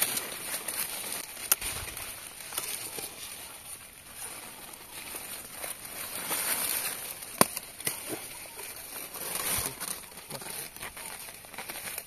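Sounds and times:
leaves and vines rustling: 0.0 - 12.0
stem snapping: 1.3 - 1.7, 7.3 - 8.2.

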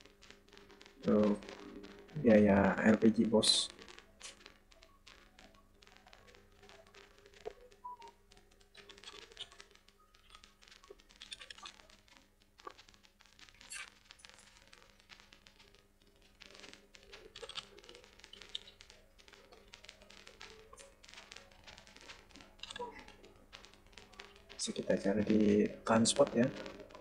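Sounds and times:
keyboard typing: 16.6 - 18.7, 19.5 - 27.0.

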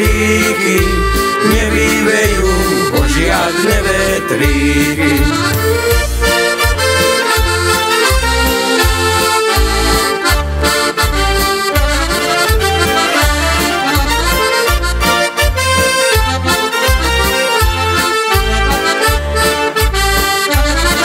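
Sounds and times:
accordion folk melody: 0.0 - 21.0.

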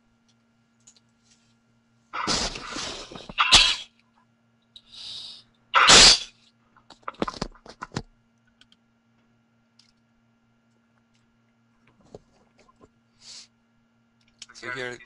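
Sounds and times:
small clicks: 0.2 - 1.2, 6.9 - 8.8, 9.7 - 10.1
sharp breathy bursts: 4.8 - 6.3.

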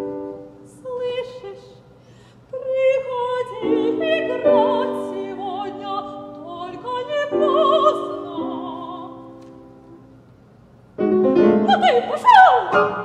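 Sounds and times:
piano chords: 0.0 - 0.8, 3.4 - 10.3, 10.9 - 13.0
woman singing operatically: 0.7 - 1.8, 2.5 - 9.4, 11.5 - 13.0.

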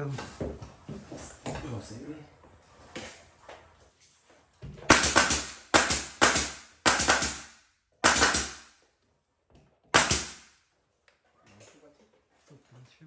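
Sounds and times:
nail gun firing: 4.9 - 8.7, 9.9 - 10.5.

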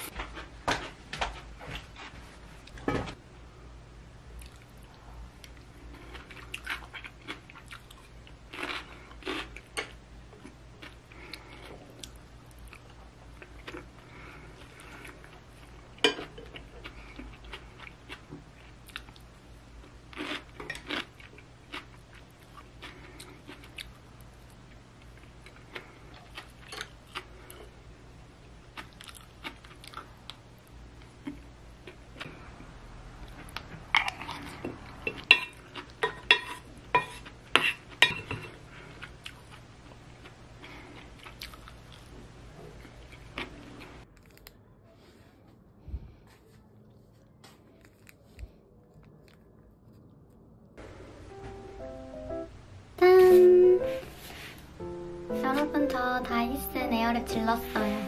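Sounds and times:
chewing and soft crunching: 4.3 - 27.8, 28.4 - 50.8.

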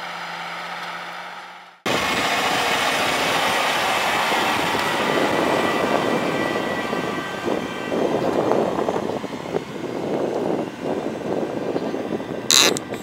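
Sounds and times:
diesel tractor engine droning: 0.0 - 13.0.

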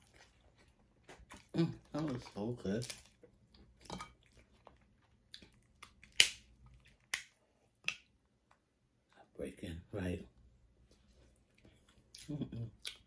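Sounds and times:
shellfish shells cracking: 5.4 - 8.1.

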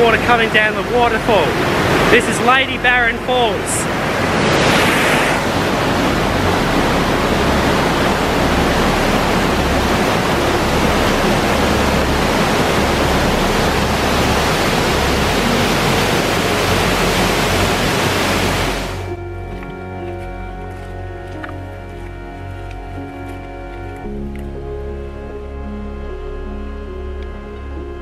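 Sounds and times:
rush of falling water: 0.0 - 19.1.

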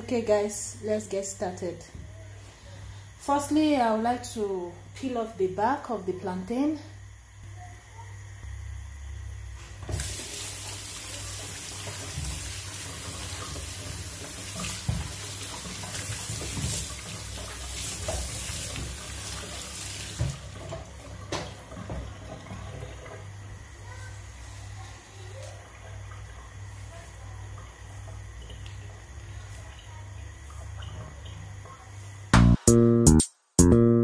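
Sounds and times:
tap water running into sink: 9.8 - 23.9, 25.4 - 31.8.

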